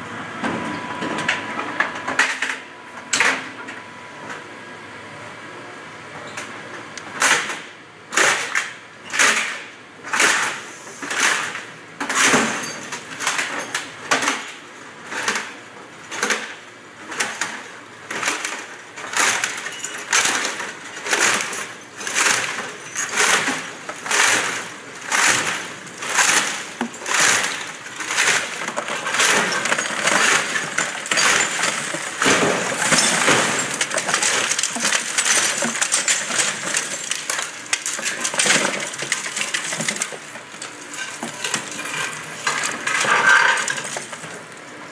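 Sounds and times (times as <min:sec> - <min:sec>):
crusher breaking scrap: 0:18.1 - 0:44.4
debris spilling onto conveyor: 0:19.1 - 0:44.5.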